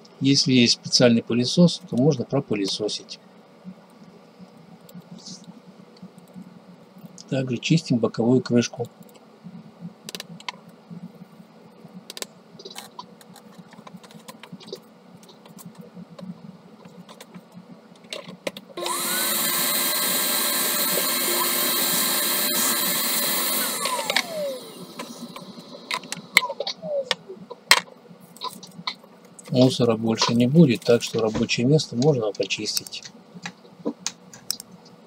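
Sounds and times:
vacuum cleaner motor whining: 18.8s - 27.1s.

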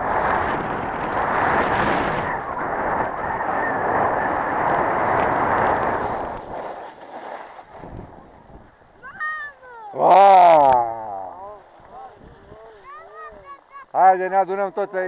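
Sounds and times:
wind buffeting microphone: 0.0s - 6.6s, 7.7s - 9.2s, 11.5s - 13.5s
skis sliding over snow: 0.0s - 15.0s.

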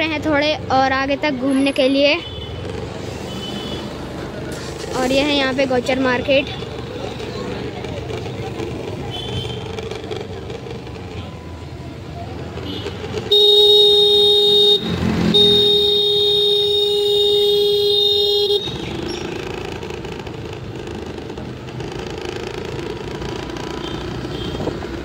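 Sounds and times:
passing cars and scooters: 0.0s - 25.0s
vehicle horn blast: 12.7s - 18.8s.

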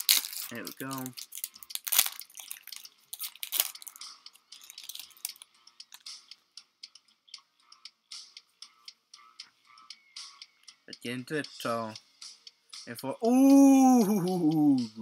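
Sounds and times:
foil wrapper crinkling: 0.0s - 4.0s, 4.6s - 5.4s
cards being handled: 0.0s - 5.4s.

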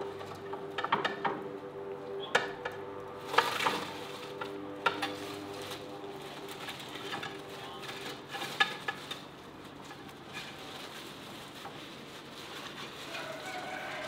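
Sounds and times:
scrape with paper rustling: 3.2s - 14.0s.

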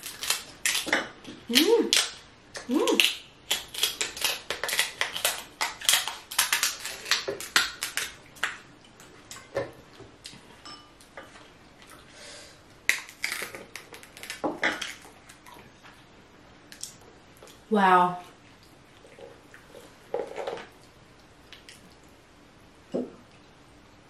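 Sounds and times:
crab shell cracking: 0.0s - 0.9s, 2.9s - 8.6s, 12.9s - 15.4s.

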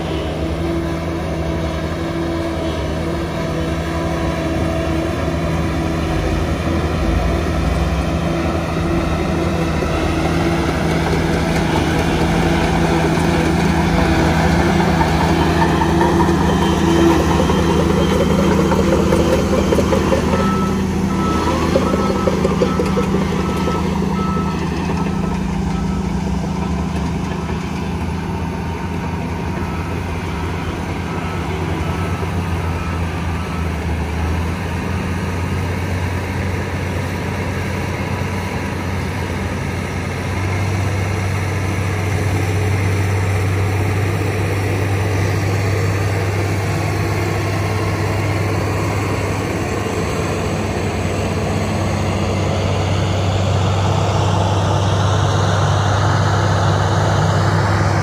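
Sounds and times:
bulldozer diesel engine running: 0.0s - 58.0s.

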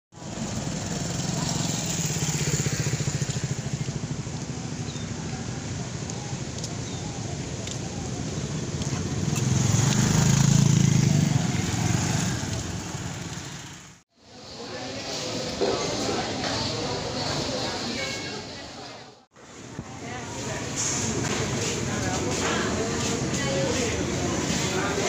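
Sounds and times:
motorcycle engines passing: 0.2s - 14.0s, 20.0s - 25.0s.

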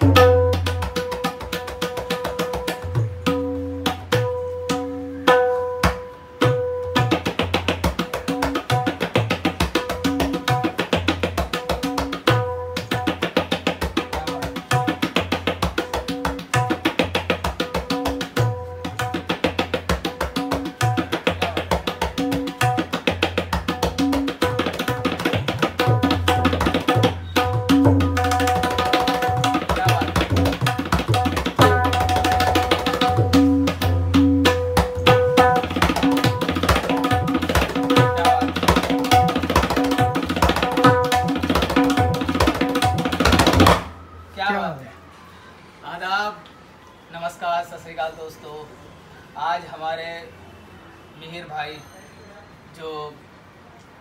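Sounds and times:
tabla playing: 0.0s - 45.1s.

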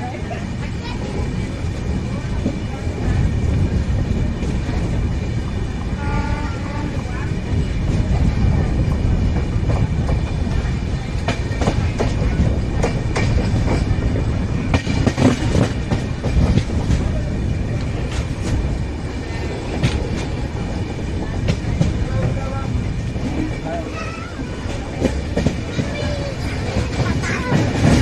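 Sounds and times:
train rumbling along track: 0.0s - 28.0s
wheels clacking over rail joints: 6.8s - 28.0s.

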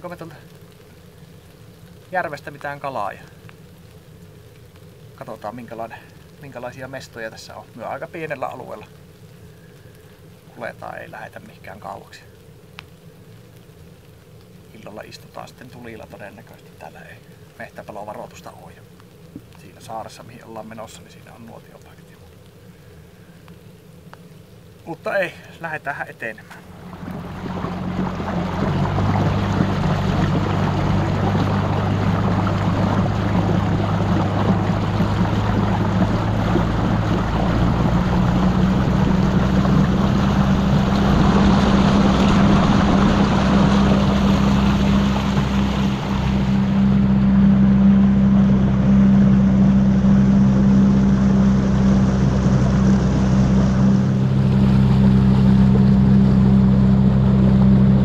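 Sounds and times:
water rushing past hull: 24.9s - 58.0s
outboard motor running: 26.5s - 58.0s.

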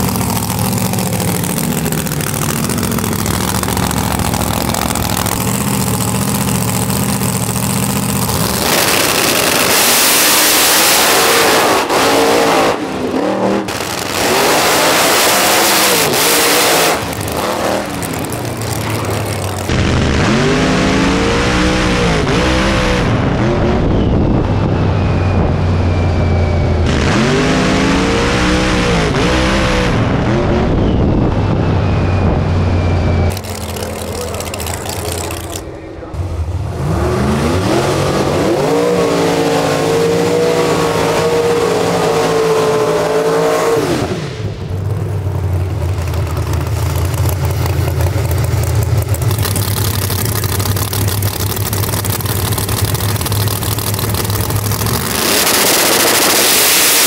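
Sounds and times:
race car engines idling: 0.0s - 9.7s, 17.0s - 20.4s, 31.0s - 38.3s, 44.5s - 55.8s
engine revving in blips: 0.0s - 44.9s, 45.6s - 57.0s
race cars launching at full throttle: 0.0s - 57.0s.

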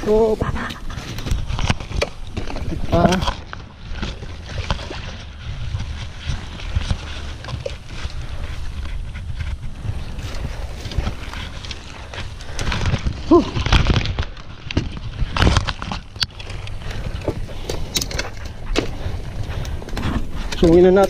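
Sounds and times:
dry leaves and twigs crackling: 0.0s - 21.0s
wind rumble on microphone: 0.0s - 21.0s.

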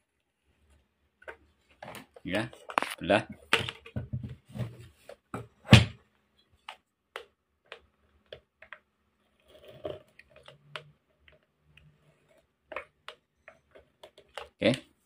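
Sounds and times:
light clicks and taps on plastic: 6.6s - 9.0s.

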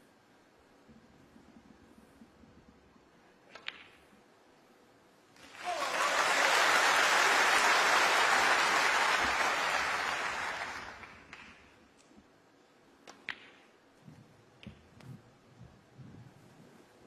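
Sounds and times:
audience applauding: 5.4s - 11.4s.

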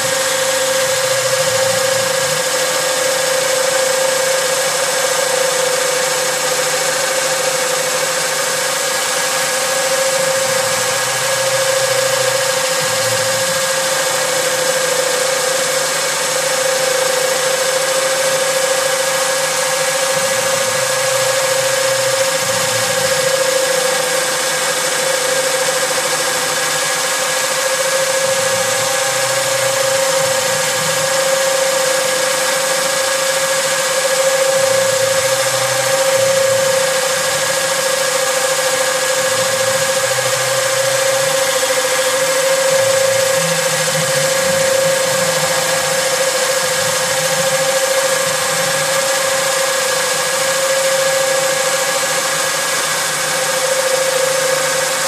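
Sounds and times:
lathe machine whine: 0.0s - 55.0s
lower hum: 34.4s - 51.9s.

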